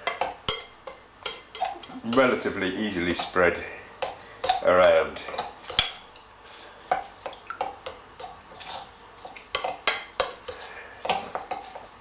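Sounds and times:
knife scraping glass bowl: 8.5 - 9.0.

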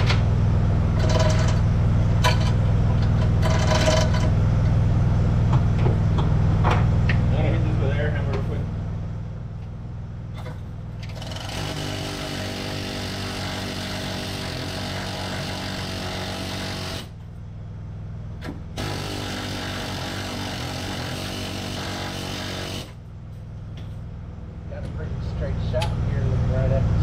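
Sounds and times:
engine humming: 0.0 - 27.0.

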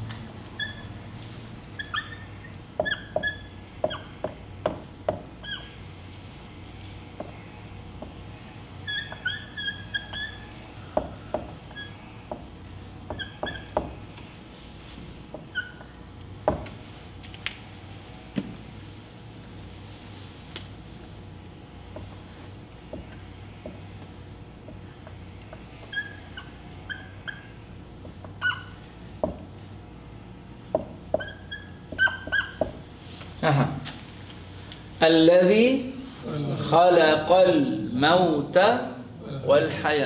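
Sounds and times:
marker squeaking on whiteboard: 0.5 - 1.0, 1.7 - 5.9, 7.2 - 14.2, 15.3 - 16.8, 24.7 - 29.4, 30.8 - 32.8
marker tapping on whiteboard: 2.8 - 5.3.

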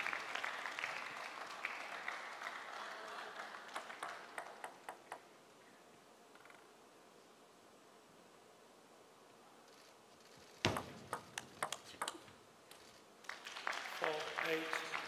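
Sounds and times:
arena applause: 0.0 - 4.9, 13.2 - 15.0
table tennis ball bouncing: 10.6 - 12.4.

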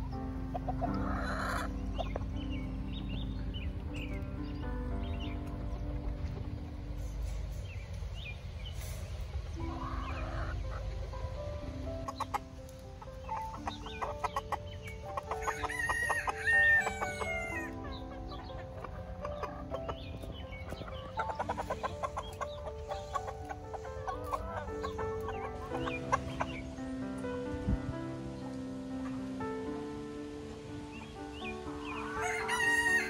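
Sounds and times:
chickens clucking: 0.0 - 33.0
soft background music: 0.0 - 33.0
rooster crowing: 15.4 - 17.7, 32.0 - 33.0.

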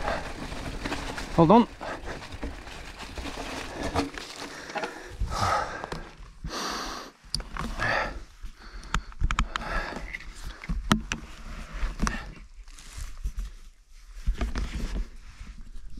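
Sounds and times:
tyres crunching through dry leaves: 0.0 - 5.3
bike knocking and rattling: 0.0 - 6.3.

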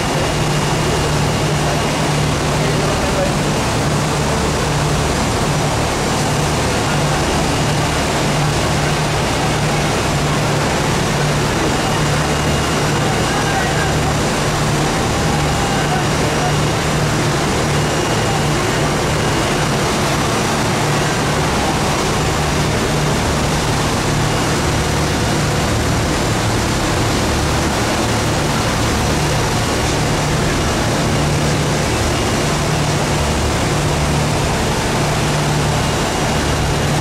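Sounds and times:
motorboat engine drone: 0.0 - 37.0
water churning in wake: 0.0 - 37.0.

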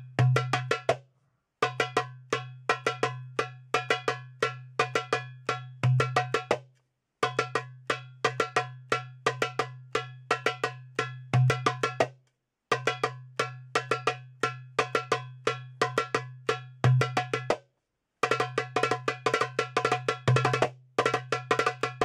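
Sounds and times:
heavy darbuka doum stroke: 0.0 - 12.2, 12.8 - 17.6, 18.2 - 22.0.

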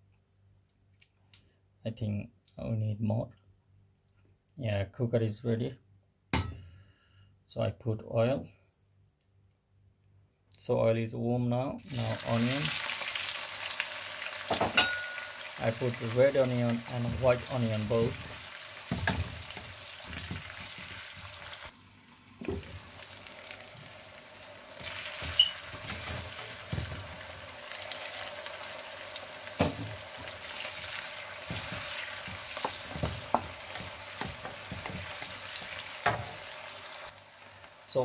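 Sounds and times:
onions sizzling in hot oil: 11.8 - 38.0
wooden spatula knocking pan: 18.8 - 21.3, 25.2 - 27.1, 29.6 - 30.4, 31.4 - 36.4.

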